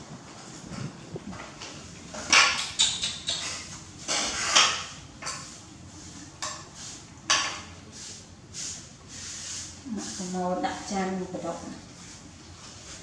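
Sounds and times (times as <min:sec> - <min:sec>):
plates scraping on tiled floor: 0:00.4 - 0:08.2.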